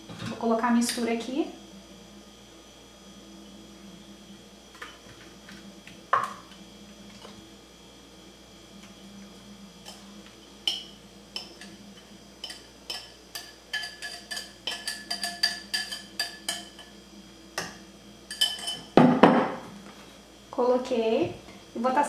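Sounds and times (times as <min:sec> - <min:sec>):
spoon scraping glass bowl: 0:13.7 - 0:16.9
loud knock: 0:19.0 - 0:19.6.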